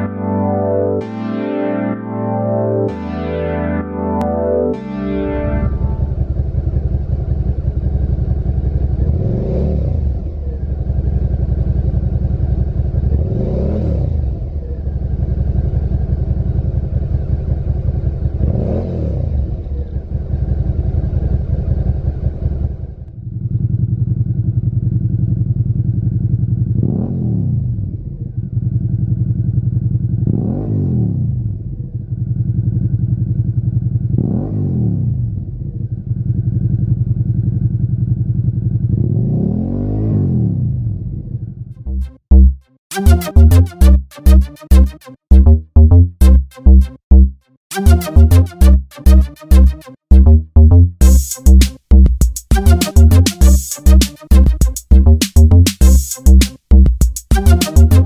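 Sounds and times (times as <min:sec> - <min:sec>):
motorcycle engine idling and revving: 0:06.0 - 0:42.6.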